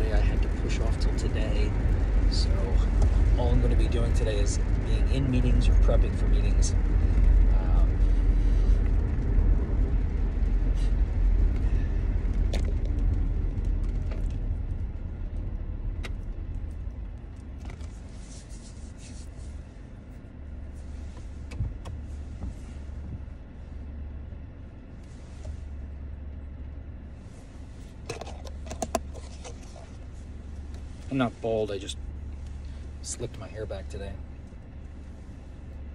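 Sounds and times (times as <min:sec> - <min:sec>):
car engine idling hum: 0:00.0 - 0:35.9
car road noise and engine rumble: 0:00.0 - 0:35.9.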